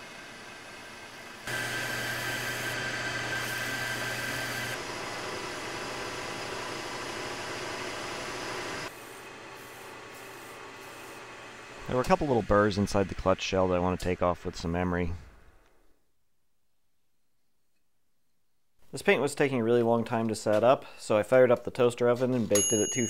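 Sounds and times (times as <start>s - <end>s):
metal lathe motor humming: 0.0s - 13.1s.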